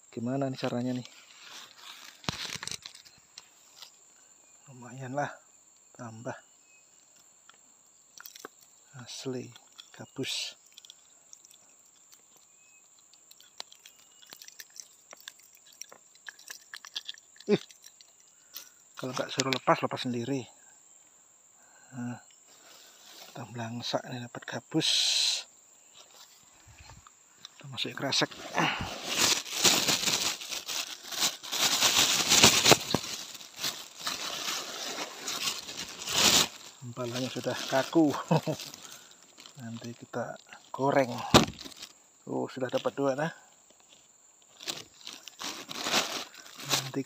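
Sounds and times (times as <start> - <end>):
plastic bag crinkling and rustling: 0.9 - 3.9, 28.1 - 40.0, 41.0 - 41.9, 44.5 - 47.0.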